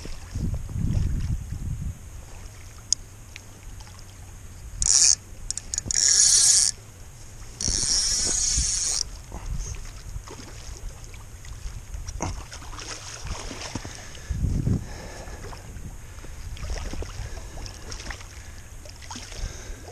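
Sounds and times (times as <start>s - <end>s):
fishing reel drag buzzing: 4.6s - 9.3s.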